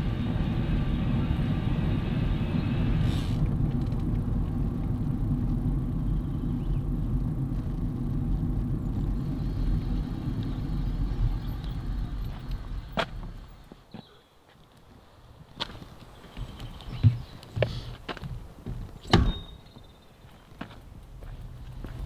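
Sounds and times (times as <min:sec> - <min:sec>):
high whine: 0:00.0 - 0:13.8
mountain bike rumbling off-road: 0:00.0 - 0:13.9, 0:20.0 - 0:22.0.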